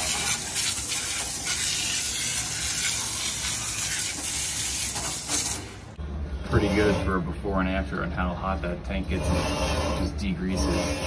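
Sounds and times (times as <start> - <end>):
hissing spray of washer wand: 0.0 - 5.8.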